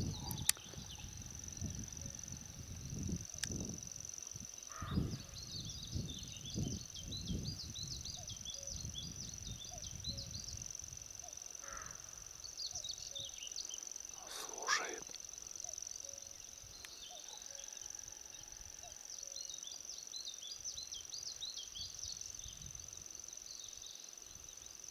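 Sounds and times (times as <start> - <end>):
wind rumble on microphone: 0.0 - 11.0, 22.4 - 23.0.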